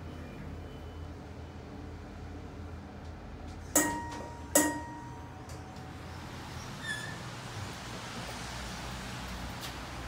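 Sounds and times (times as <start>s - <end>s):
low steady hum: 0.0s - 6.3s
elevator arrival chime: 3.8s - 5.5s.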